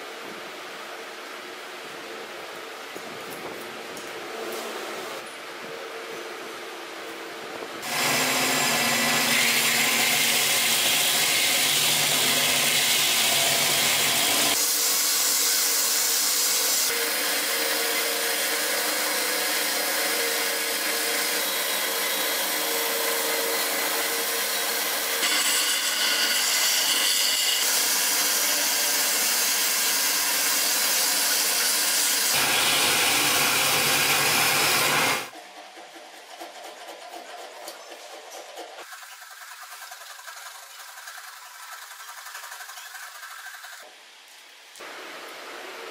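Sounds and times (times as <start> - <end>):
belt grinder sanding wood: 7.8 - 43.9.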